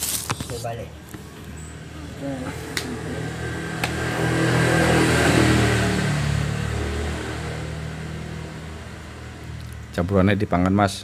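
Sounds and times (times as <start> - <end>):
vehicle passing by: 1.6 - 10.2.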